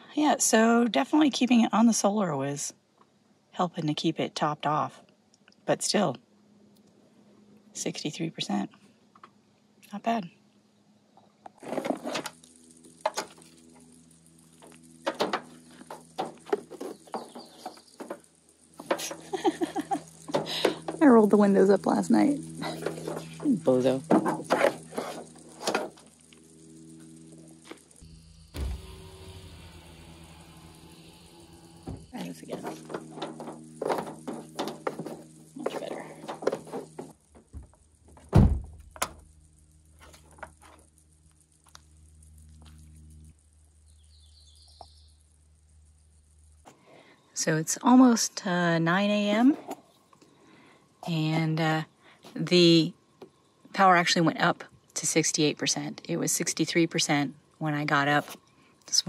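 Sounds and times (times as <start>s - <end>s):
faint steady hum: 0.0s - 59.0s
car door shutting with a thunk: 38.3s - 39.1s.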